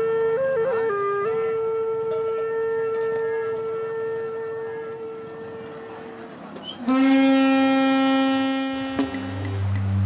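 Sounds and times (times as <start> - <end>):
long held wind instrument note: 0.0 - 6.0, 6.8 - 10.0.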